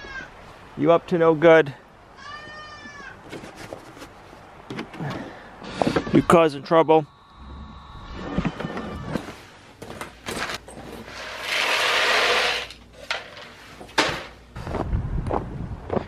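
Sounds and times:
pellets pouring into plastic bucket: 11.1s - 12.7s.

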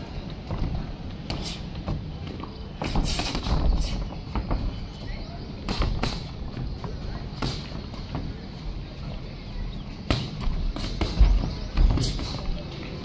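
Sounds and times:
boxing gloves hitting: 10.0s - 12.4s.

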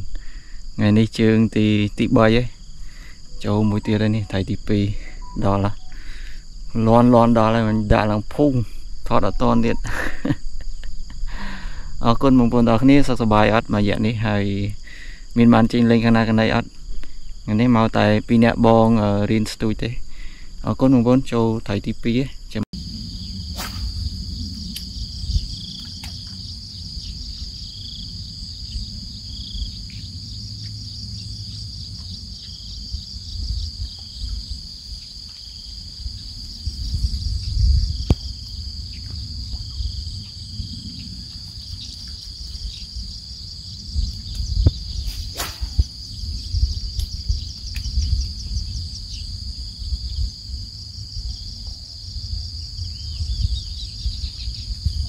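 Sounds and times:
insects trilling: 0.0s - 55.0s
low rumbling noise: 22.8s - 35.0s, 35.7s - 55.0s.

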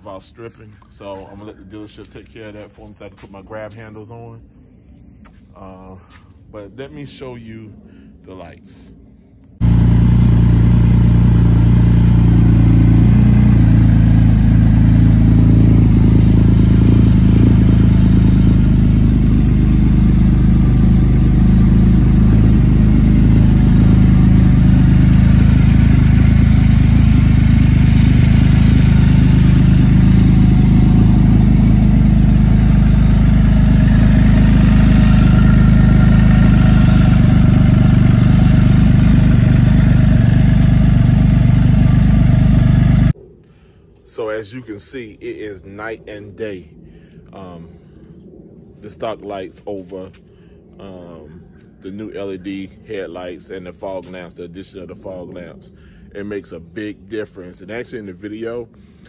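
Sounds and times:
engine idling loud: 9.6s - 43.2s.

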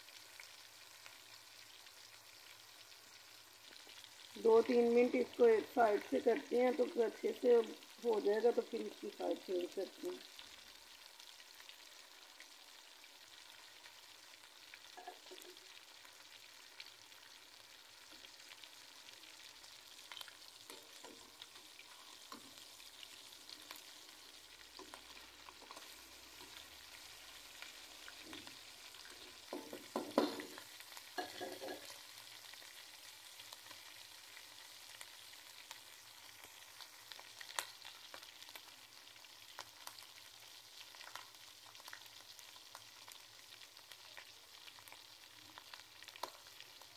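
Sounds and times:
chicken frying in oil: 0.0s - 46.9s
spoon scraping and knocking pan: 29.1s - 30.6s, 31.2s - 32.0s.

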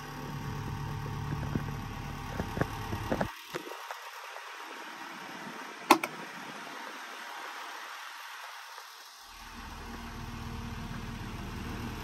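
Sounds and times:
electric fan motor hum: 0.0s - 12.0s.

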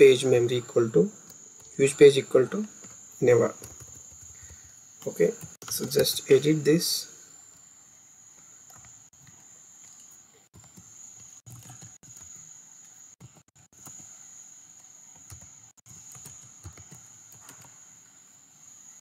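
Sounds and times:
steady high-pitched whine: 0.0s - 19.0s
computer keyboard typing: 2.6s - 6.6s, 8.6s - 17.8s.

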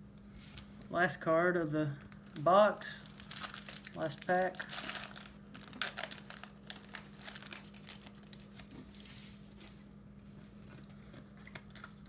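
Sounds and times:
foil wrapper crinkling: 2.0s - 9.0s.

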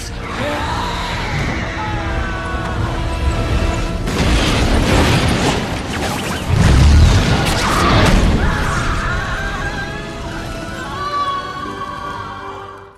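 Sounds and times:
orchestral score: 0.0s - 6.0s, 7.0s - 12.9s
explosion with heavy boom: 4.0s - 9.8s.

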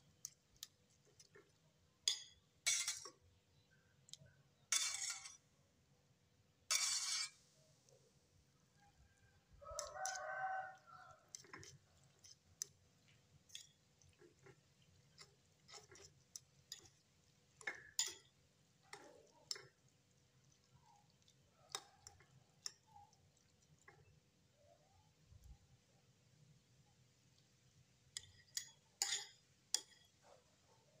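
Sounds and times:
fork clinking against ceramic bowl: 2.0s - 3.2s, 4.7s - 5.4s, 9.7s - 12.8s, 13.5s - 17.0s, 17.6s - 19.8s, 28.2s - 30.2s.

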